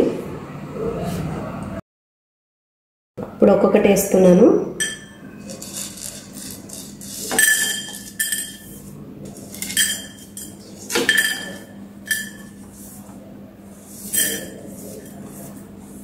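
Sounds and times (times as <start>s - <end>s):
spices clinking into metal pan: 4.8s - 8.7s, 9.3s - 12.6s.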